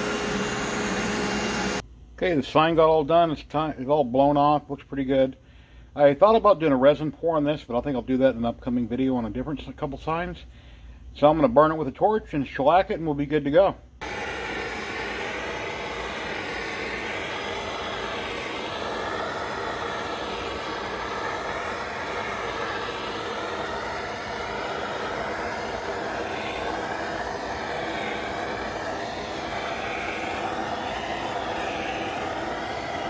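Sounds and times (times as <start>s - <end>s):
gas torch roaring: 0.0s - 1.8s, 14.0s - 33.0s.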